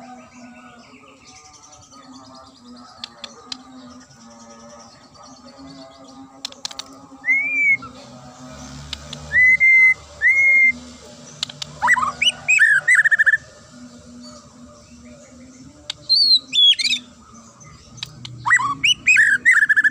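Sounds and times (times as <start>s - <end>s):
bird singing whistles: 7.2s - 7.9s, 9.2s - 10.8s, 18.0s - 19.9s.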